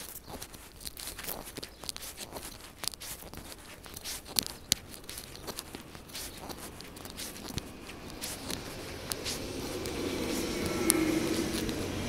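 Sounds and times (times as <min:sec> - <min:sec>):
footsteps on pavement: 0:00.0 - 0:12.0
rustling: 0:00.0 - 0:12.0
sharp clicks: 0:00.0 - 0:12.0
train rumble: 0:04.8 - 0:12.0.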